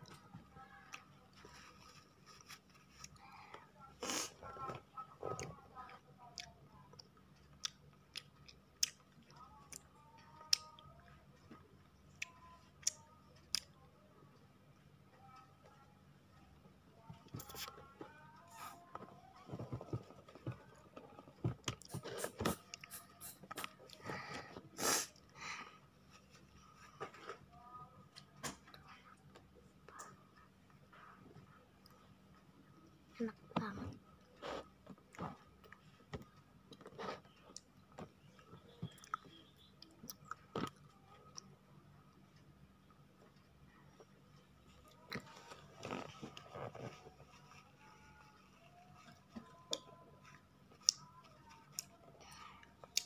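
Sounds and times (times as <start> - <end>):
child chewing honeycomb: 0.0 - 13.8, 17.0 - 32.4, 33.2 - 53.0
person chewing honeycomb: 6.2 - 10.8, 34.3 - 41.5, 48.9 - 52.0.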